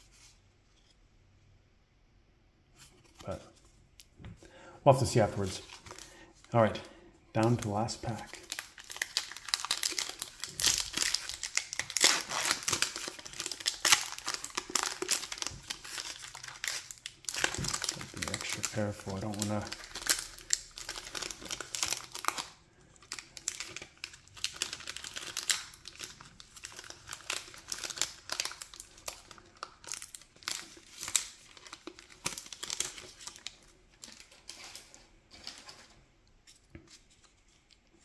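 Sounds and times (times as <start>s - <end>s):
wrapper torn and crinkled: 7.4s - 35.5s.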